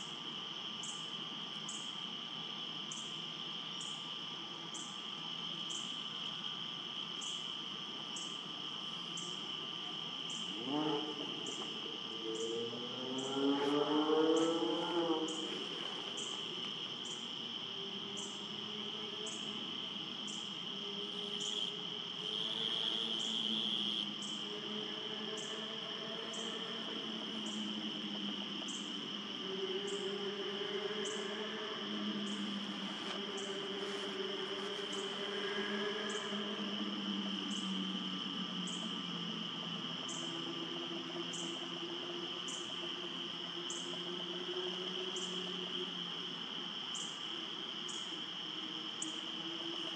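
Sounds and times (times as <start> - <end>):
insect chirps: 0.0 - 49.9
insects trilling: 0.0 - 49.9
low wavering hum: 22.2 - 46.0.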